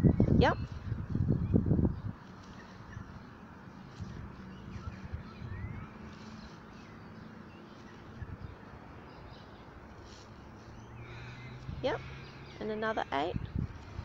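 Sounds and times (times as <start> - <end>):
steady low rumble: 0.0 - 6.9
faint bird chirps: 4.0 - 12.8.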